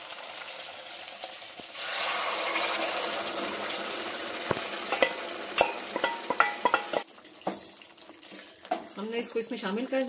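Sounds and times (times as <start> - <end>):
food sizzling in hot oil: 0.0 - 10.0
spoon clinking on steel pot: 4.9 - 7.1.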